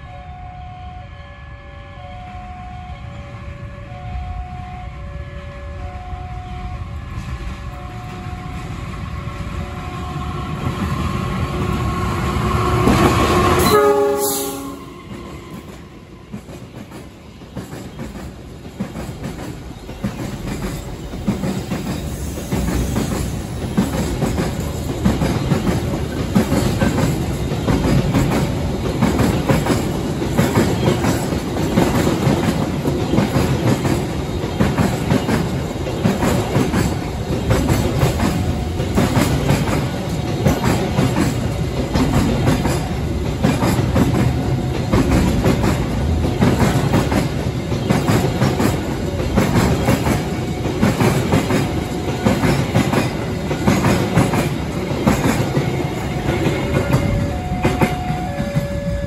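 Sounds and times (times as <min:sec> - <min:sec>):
train horn: 0:00.0 - 0:08.8, 0:12.4 - 0:16.3, 0:56.1 - 0:59.0
train wheels clickety-clack: 0:07.1 - 0:59.0.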